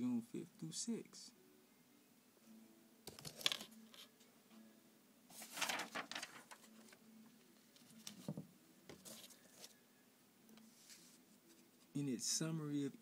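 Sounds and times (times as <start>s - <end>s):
book pages rustling: 3.1s - 4.1s, 5.3s - 7.0s, 7.7s - 9.8s, 10.6s - 11.8s.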